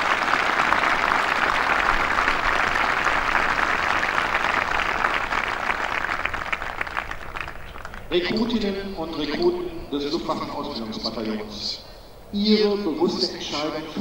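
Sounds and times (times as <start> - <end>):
large crowd applauding: 0.0 - 8.2.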